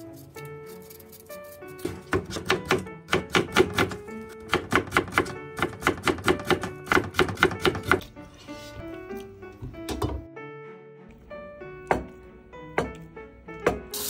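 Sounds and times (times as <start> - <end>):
light background music: 0.0 - 14.0
knife chopping on cutting board: 1.8 - 8.1.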